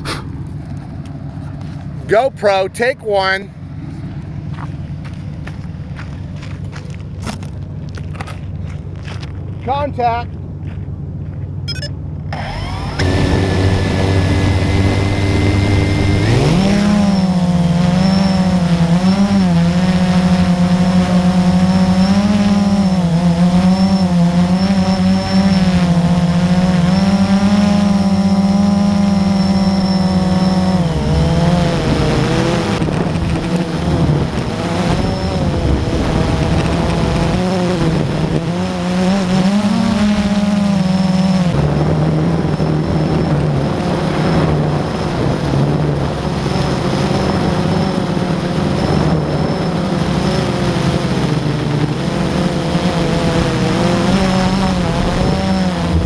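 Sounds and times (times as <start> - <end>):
drone propellers buzzing: 11.7 - 56.0.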